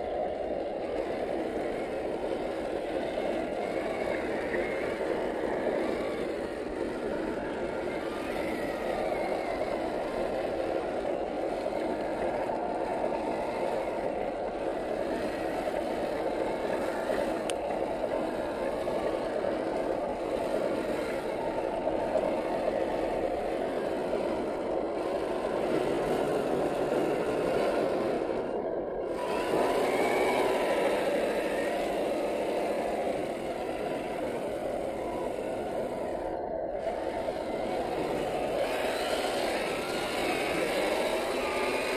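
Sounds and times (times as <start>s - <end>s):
electric motor and gears whining: 3.1s - 41.9s
tyres churning mud: 29.0s - 41.9s.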